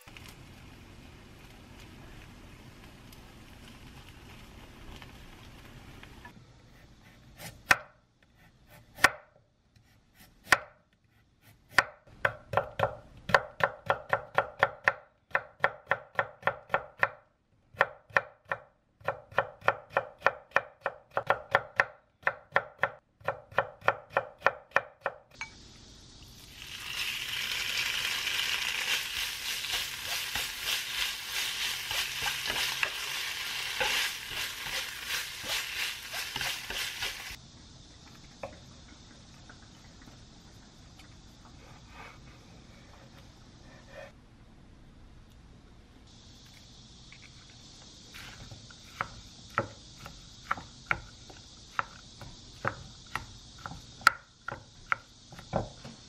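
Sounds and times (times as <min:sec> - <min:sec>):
meat sizzling in a pan: 0:26.1 - 0:37.4.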